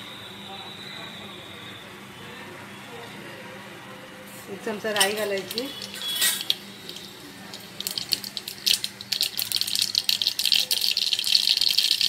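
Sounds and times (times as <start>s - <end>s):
seeds sizzling and popping in oil: 5.0s - 12.0s.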